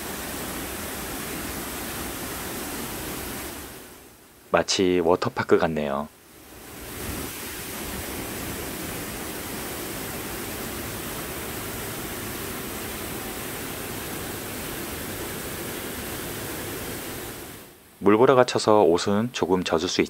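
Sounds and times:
waterfall pouring: 0:06.5 - 0:17.7.

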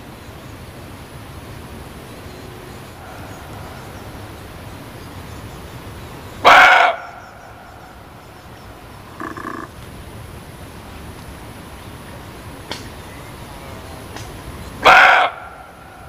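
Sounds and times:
background hiss: 0:00.0 - 0:16.0
deer barking: 0:06.4 - 0:07.1, 0:09.1 - 0:09.7, 0:14.8 - 0:15.6.

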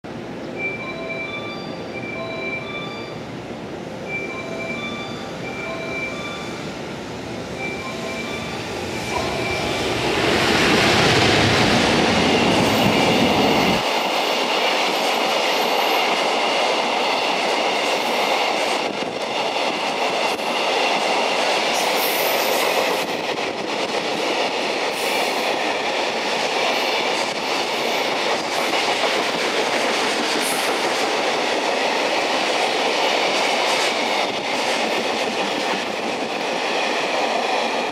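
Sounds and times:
electric locomotive passing: 0:00.1 - 0:37.9
high ringing of wheels on rails: 0:00.1 - 0:37.9
train wheel clatter: 0:08.3 - 0:37.9.

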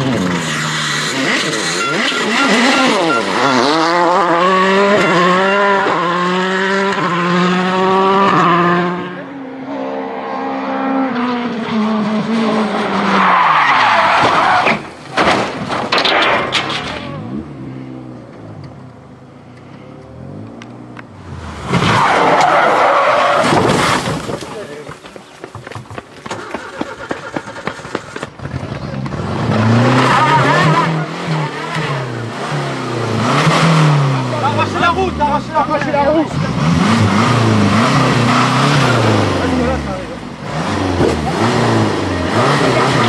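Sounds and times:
tyres skidding: 0:00.0 - 0:09.2, 0:10.9 - 0:43.0
rally car engines revving: 0:00.0 - 0:25.2, 0:26.3 - 0:43.0.

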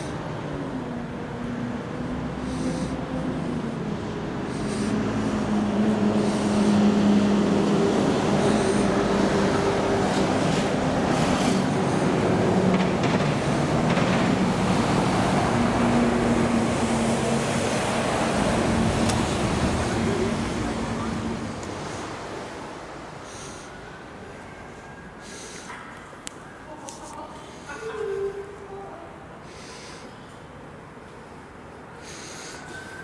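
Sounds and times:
large vehicle engine running: 0:00.0 - 0:22.3
road traffic: 0:00.0 - 0:33.0.

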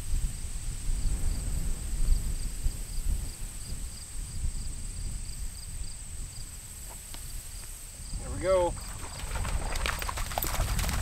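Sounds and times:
steady high insect buzz: 0:00.0 - 0:08.2
wind buffeting microphone: 0:00.0 - 0:11.0
insects chirping: 0:00.1 - 0:11.0.

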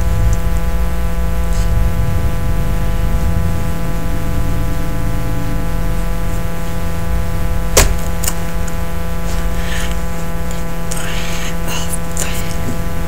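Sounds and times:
electrical hum and buzz: 0:00.0 - 0:13.0.

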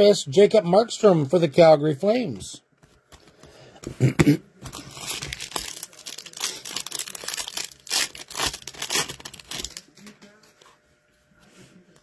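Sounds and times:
foil wrapper crinkling and tearing: 0:04.7 - 0:10.0.

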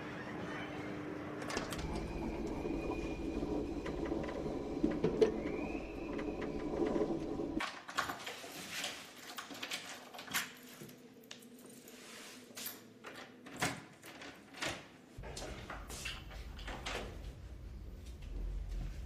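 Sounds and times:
low steady rumble: 0:01.8 - 0:07.6, 0:15.2 - 0:19.0.

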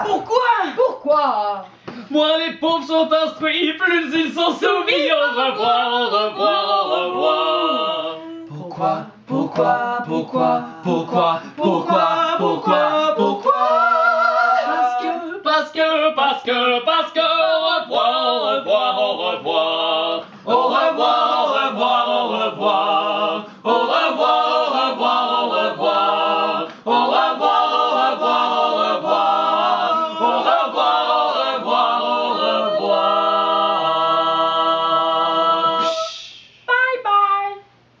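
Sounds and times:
group singing a cappella: 0:04.1 - 0:36.5
brief vocal sound: 0:35.8 - 0:36.7.

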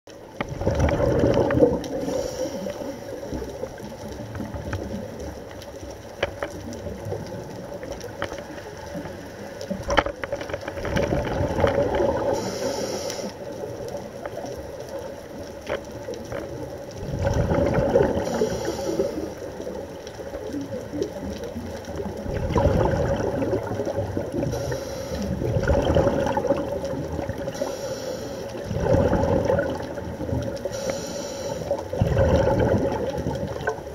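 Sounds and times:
exhaled bubbles rumbling: 0:00.1 - 0:33.9
regulator inhalation hiss: 0:02.0 - 0:03.3, 0:12.4 - 0:13.5, 0:18.2 - 0:19.4, 0:24.5 - 0:25.4, 0:27.5 - 0:28.6, 0:30.6 - 0:31.8
steady hum: 0:27.5 - 0:28.6, 0:30.6 - 0:31.8.

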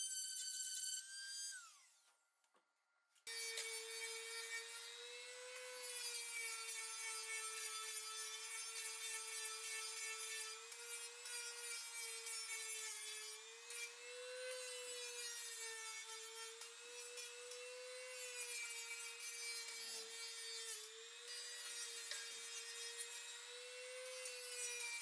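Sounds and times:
rotary tool high whine: 0:03.3 - 0:25.0.

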